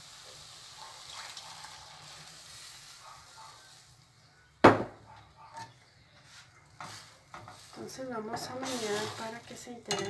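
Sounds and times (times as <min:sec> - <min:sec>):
liquid poured into sizzling pan: 0:00.0 - 0:04.3, 0:06.6 - 0:10.0
faint sizzle: 0:00.0 - 0:04.6, 0:05.5 - 0:10.0
sharp knock: 0:04.6 - 0:05.0.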